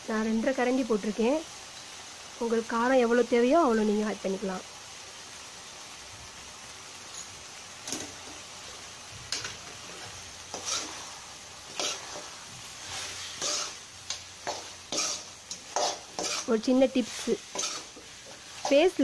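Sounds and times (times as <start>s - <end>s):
chicken sizzling: 0.0s - 19.0s
spoon scraping and clinking in pot: 13.4s - 13.8s, 14.4s - 16.6s, 17.5s - 18.8s.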